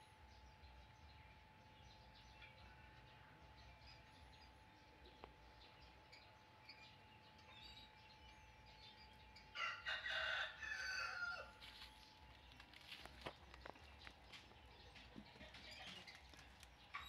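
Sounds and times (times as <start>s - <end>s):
rooster crowing: 9.5s - 11.6s.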